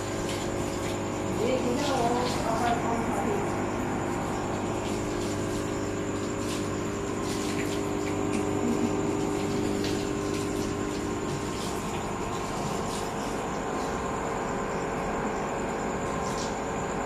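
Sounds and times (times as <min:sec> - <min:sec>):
aquarium pump humming: 0:00.0 - 0:17.0.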